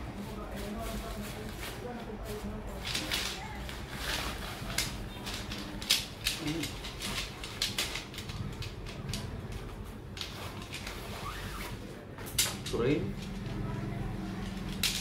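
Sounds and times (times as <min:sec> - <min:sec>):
plastic and fabric rustling: 0:00.0 - 0:15.0
tent poles clicking and clattering: 0:00.6 - 0:11.4, 0:14.3 - 0:15.0.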